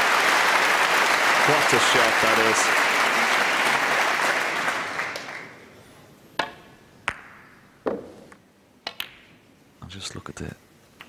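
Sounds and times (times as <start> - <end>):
audience applause: 0.0 - 5.7.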